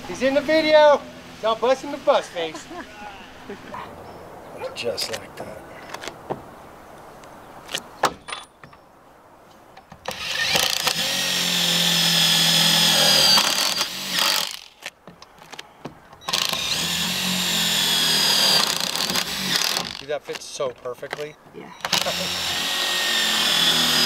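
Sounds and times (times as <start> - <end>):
cordless drill motor whine: 10.1 - 14.8, 16.2 - 20.0, 21.8 - 24.0.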